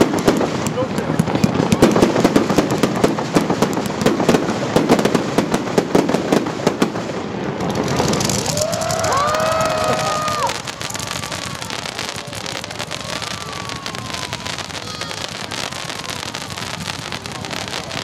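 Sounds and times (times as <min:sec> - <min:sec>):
fireworks crackling: 0:00.0 - 0:18.0
firework whistle: 0:08.0 - 0:18.0.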